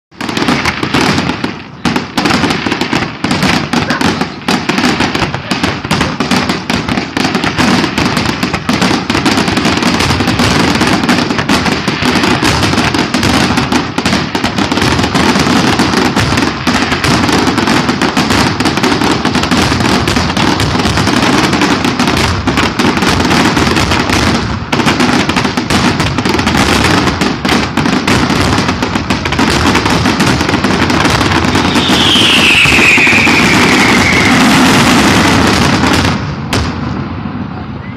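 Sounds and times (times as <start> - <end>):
fireworks barrage: 0.1 - 37.9.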